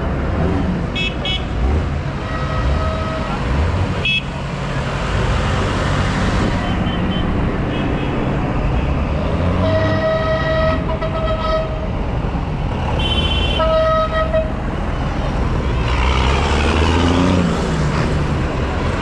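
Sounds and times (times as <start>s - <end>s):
tractor engines rumbling: 0.0s - 19.0s
horn sounding: 9.4s - 11.9s.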